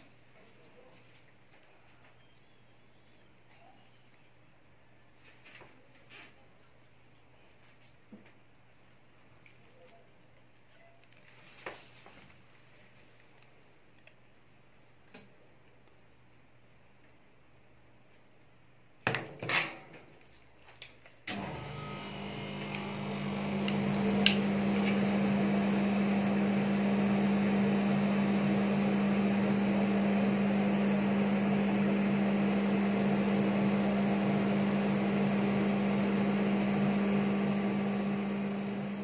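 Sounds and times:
refrigeration unit humming: 0:21.3 - 0:39.0.

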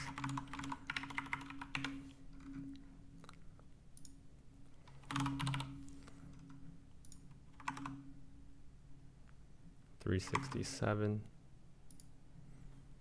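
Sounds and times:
faint steady hum: 0:00.0 - 0:13.0
keyboard and mouse clicks: 0:04.0 - 0:08.0, 0:11.9 - 0:12.1.

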